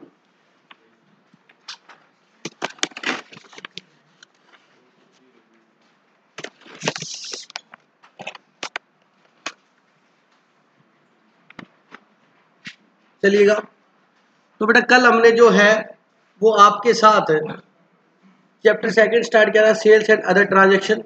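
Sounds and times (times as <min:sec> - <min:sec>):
handling clicks and knocks: 0:01.4 - 0:04.6.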